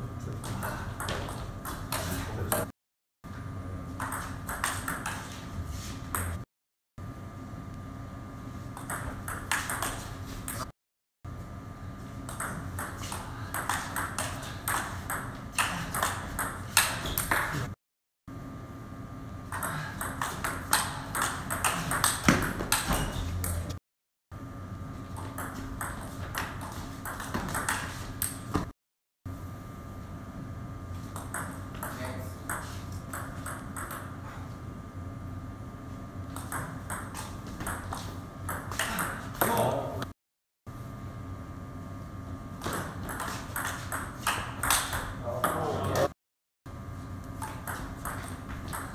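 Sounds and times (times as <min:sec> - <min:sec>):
table tennis ball hits: 0:04.0 - 0:05.3, 0:08.8 - 0:10.6, 0:12.3 - 0:17.7, 0:19.5 - 0:23.7, 0:25.2 - 0:28.7, 0:31.2 - 0:34.2, 0:36.4 - 0:39.8, 0:42.6 - 0:45.7, 0:47.4 - 0:48.9.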